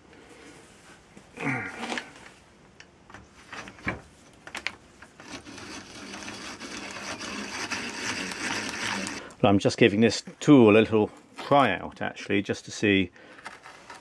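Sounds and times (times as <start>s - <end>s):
hand drill boring into wood: 5.2s - 9.3s.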